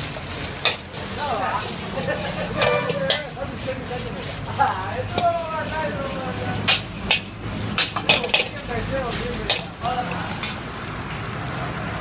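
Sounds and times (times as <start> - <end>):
rice sizzling in a wok: 0.0 - 12.0
metal ladle clanking on wok: 0.6 - 1.1, 2.5 - 3.4, 6.6 - 8.7, 9.4 - 10.6.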